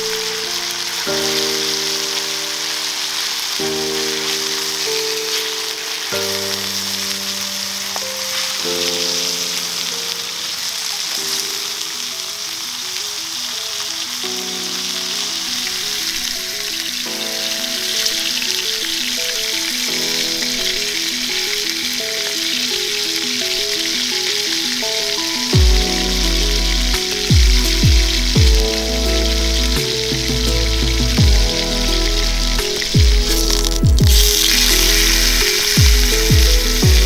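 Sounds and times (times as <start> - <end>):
background music melody: 0.0 - 37.0
steady sizzling hiss: 0.0 - 37.0
deep falling bass hits: 25.6 - 37.0.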